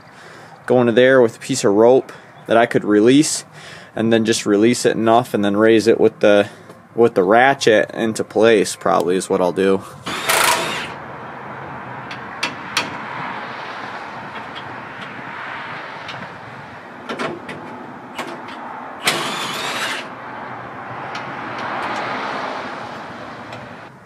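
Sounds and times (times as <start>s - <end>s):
steady background noise: 0.0s - 24.0s
loud metal rattling: 10.1s - 11.0s, 16.1s - 20.1s.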